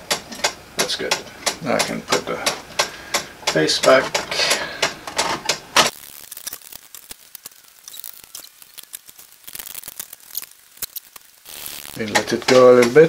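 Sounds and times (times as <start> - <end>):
plastic clock parts clicking: 0.1 - 5.9, 12.0 - 13.0.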